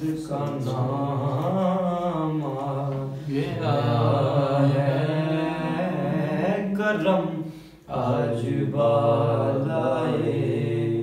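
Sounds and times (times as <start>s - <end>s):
man chanting: 0.0s - 8.6s.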